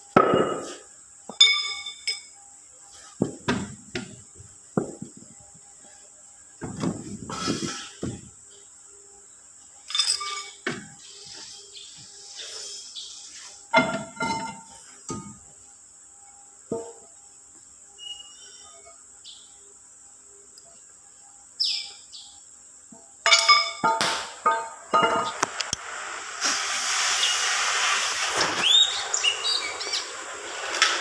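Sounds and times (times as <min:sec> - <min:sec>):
high insect whine: 0:00.0 - 0:31.0
sharp metal clinks: 0:01.3 - 0:02.4, 0:09.9 - 0:10.6, 0:23.2 - 0:25.3.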